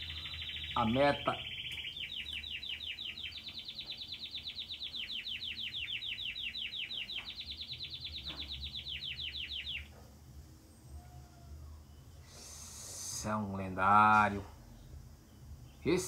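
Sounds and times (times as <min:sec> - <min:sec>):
canary singing rapid trill: 0:00.0 - 0:10.0.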